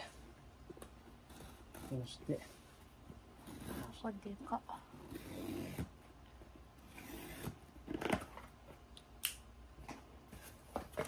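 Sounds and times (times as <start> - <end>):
cardboard rustling and scraping: 1.1 - 4.3, 10.2 - 11.0.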